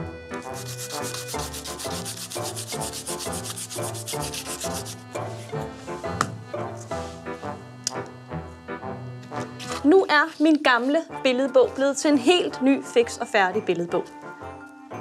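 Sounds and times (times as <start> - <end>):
rubbing on paper: 0.5 - 5.5.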